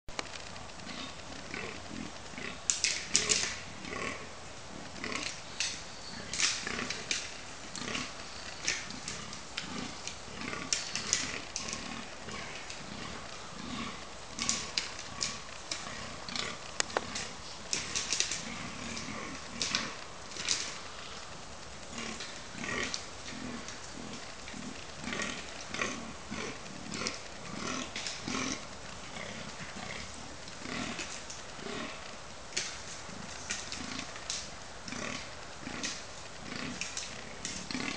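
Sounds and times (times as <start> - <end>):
deer grunting: 0.8 - 37.9
antlers clattering together: 5.1 - 12.9, 14.4 - 21.0.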